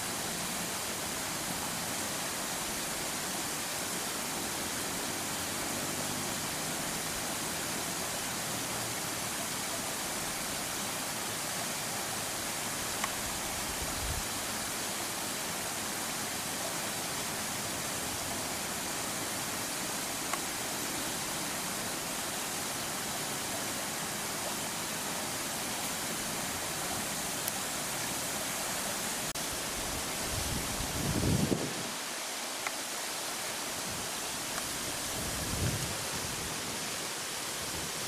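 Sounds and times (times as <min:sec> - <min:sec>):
faint ticks: 0:32.6 - 0:32.8.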